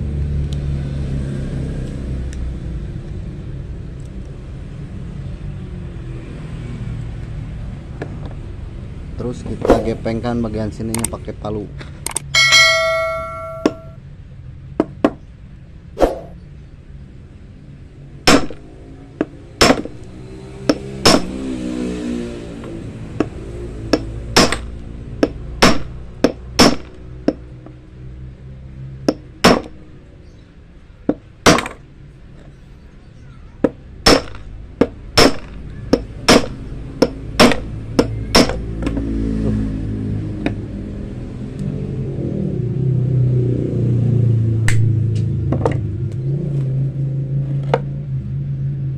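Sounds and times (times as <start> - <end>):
hammer striking metal: 12.4 - 14.0, 20.7 - 21.4, 23.9 - 26.9, 34.0 - 34.4, 35.2 - 38.6.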